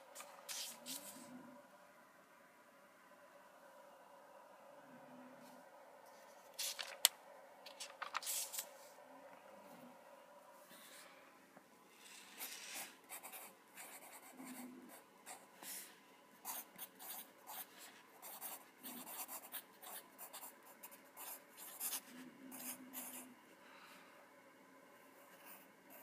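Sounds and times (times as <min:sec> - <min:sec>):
pencil scratching on paper: 0:12.1 - 0:23.3.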